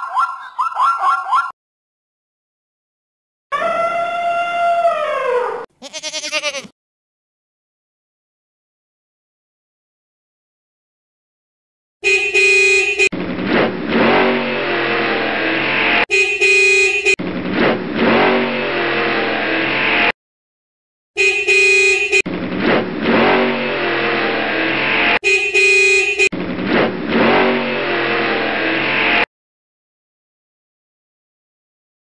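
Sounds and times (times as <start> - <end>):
vehicle horn honking: 12.0 - 13.1, 16.0 - 17.2, 21.2 - 22.2, 25.2 - 26.3
vehicle engine running: 13.2 - 16.0, 22.3 - 25.2, 26.3 - 29.2.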